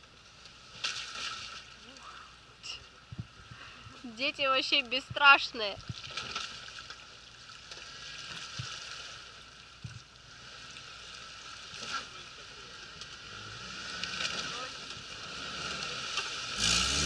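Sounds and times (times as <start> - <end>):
wheels churning slush and water: 0.0 - 17.0
faint car engine: 9.3 - 17.0.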